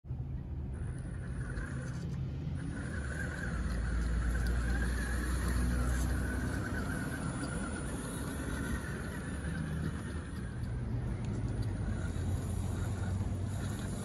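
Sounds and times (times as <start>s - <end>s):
tires rumbling on dirt: 0.1s - 14.0s
electric motor whining: 0.6s - 14.0s.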